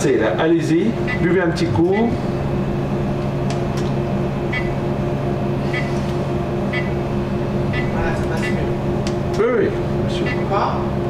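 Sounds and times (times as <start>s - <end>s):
x-ray equipment electrical hum: 0.0s - 11.0s
faint high blips: 4.5s - 4.8s, 6.7s - 7.1s.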